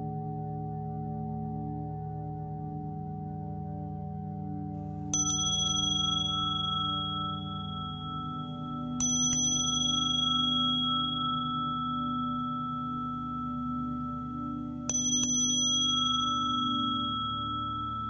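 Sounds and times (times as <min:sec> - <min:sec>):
singing bowls droning: 0:00.0 - 0:18.0
small high-pitched bell ringing: 0:05.2 - 0:18.0.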